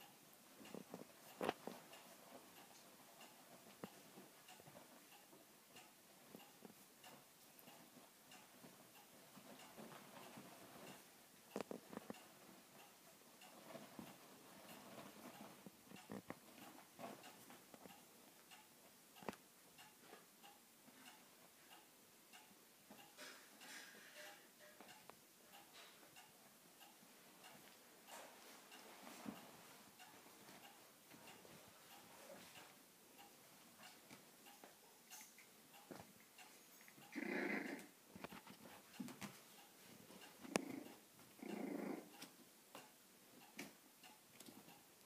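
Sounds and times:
faint ticks and clicks: 0.0s - 45.0s.

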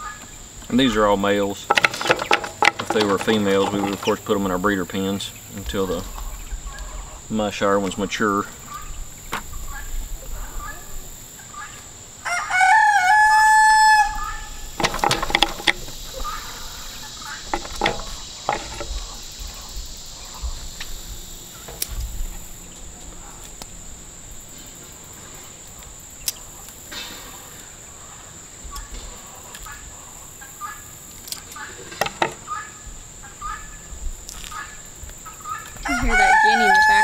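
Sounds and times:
insects droning: 0.0s - 37.0s
rooster crowing: 12.2s - 14.8s, 35.8s - 37.0s.

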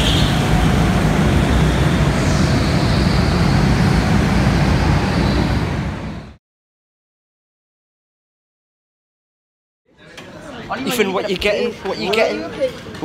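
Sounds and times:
go-kart engines rumbling: 0.0s - 6.4s.

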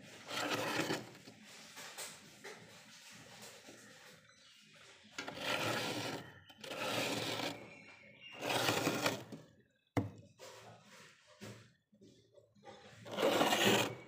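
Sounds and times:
frost being scraped: 5.2s - 7.7s, 8.4s - 9.4s, 13.0s - 14.0s
light rubbing: 8.4s - 9.4s, 13.0s - 14.0s.

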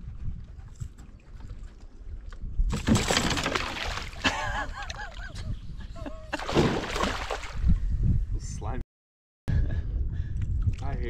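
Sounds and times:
fish splashing in water: 6.4s - 7.6s.

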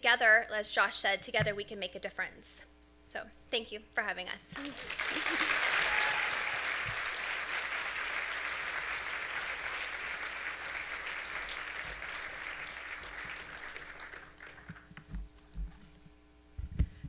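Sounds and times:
audience applauding: 4.6s - 15.0s.

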